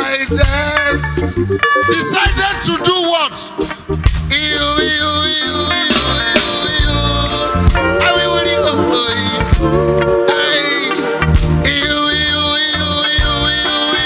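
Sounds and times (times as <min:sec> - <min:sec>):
bass guitar: 0:00.0 - 0:14.0
drum kit: 0:00.0 - 0:14.0
voices singing held notes: 0:04.3 - 0:14.0.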